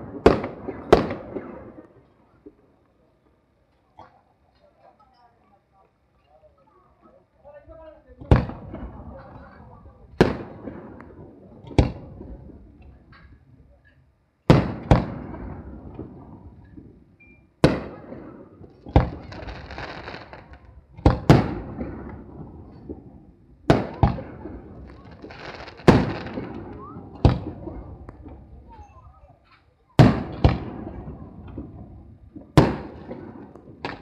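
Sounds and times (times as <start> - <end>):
firework shells bursting: 23.7 - 28.6.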